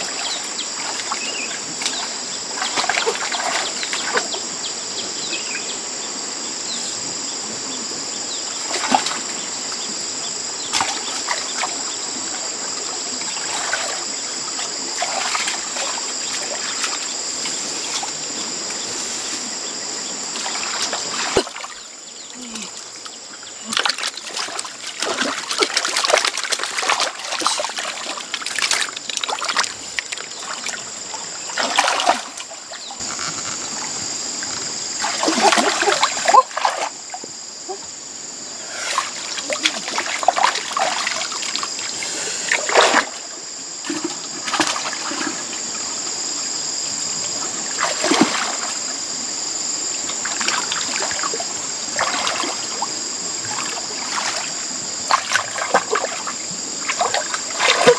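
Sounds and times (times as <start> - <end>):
hands splashing in muddy water: 13.4 - 14.0, 14.6 - 17.0, 23.7 - 30.8, 31.5 - 32.5, 35.0 - 37.0, 38.9 - 41.7, 42.5 - 43.2, 43.8 - 45.4, 47.8 - 48.9, 51.9 - 57.9.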